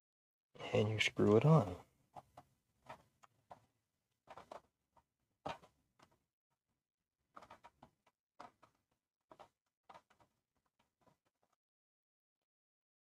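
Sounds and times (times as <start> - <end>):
fingers clicking and rubbing: 4.3 - 6.2, 7.3 - 11.6.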